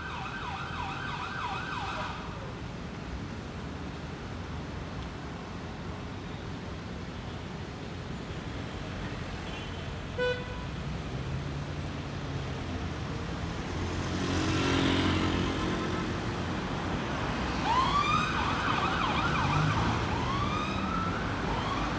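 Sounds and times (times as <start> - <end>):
road traffic: 0.0 - 21.9
siren wailing: 17.6 - 21.9.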